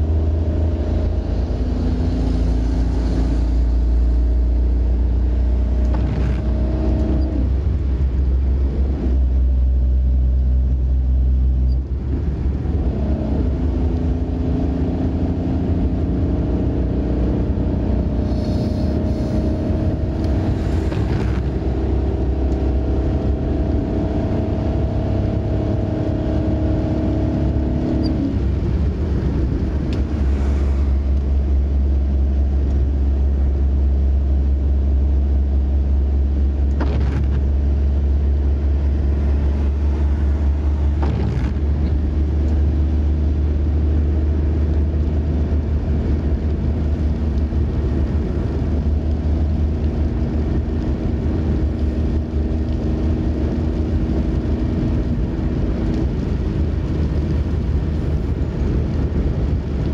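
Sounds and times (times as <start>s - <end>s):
tyres and engine rumble: 0.0s - 59.9s
brief hissing: 18.2s - 19.4s.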